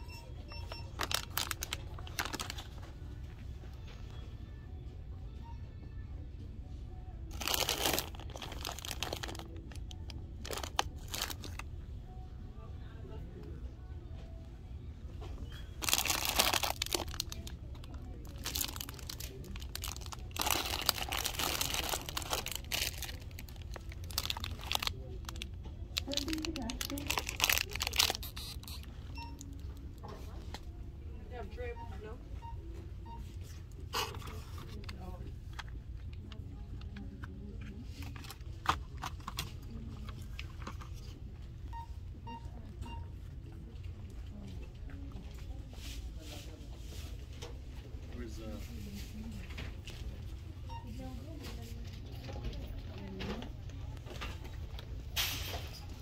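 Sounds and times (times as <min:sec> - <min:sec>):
shop background hum: 0:00.0 - 0:56.0
plastic bags rustling: 0:00.9 - 0:02.8, 0:07.3 - 0:11.6, 0:15.8 - 0:28.9.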